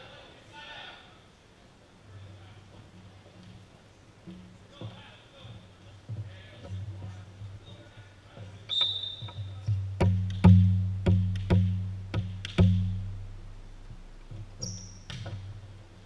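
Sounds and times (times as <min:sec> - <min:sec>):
referee whistle: 0:08.7 - 0:09.6.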